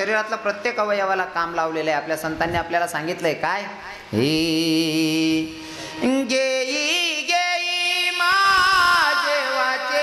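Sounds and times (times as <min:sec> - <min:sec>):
solo devotional singing: 0:04.1 - 0:10.0.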